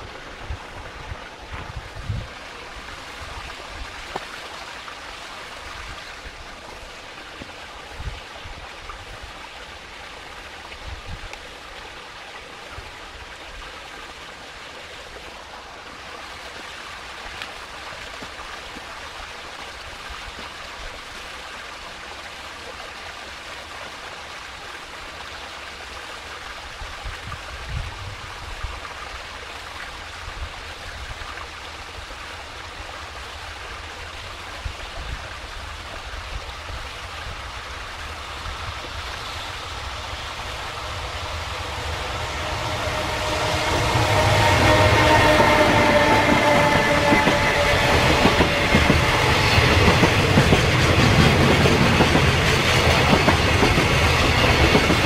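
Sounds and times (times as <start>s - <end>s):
steady outdoor rushing noise: 0.0s - 20.0s, 33.0s - 55.0s
wind buffeting microphone: 0.3s - 2.5s.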